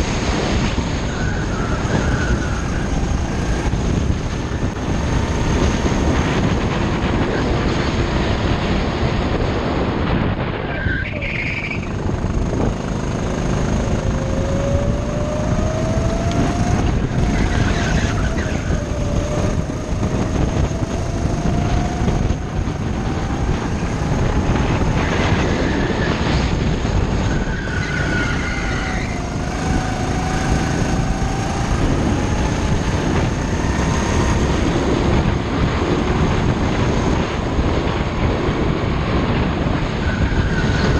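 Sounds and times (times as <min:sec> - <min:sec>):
go-kart engine running: 0:00.0 - 0:40.9.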